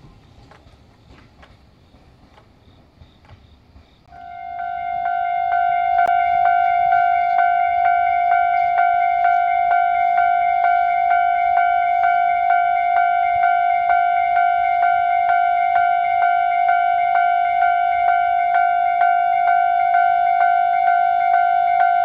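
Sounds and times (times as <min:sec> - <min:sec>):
level crossing warning bell: 0:04.1 - 0:22.0.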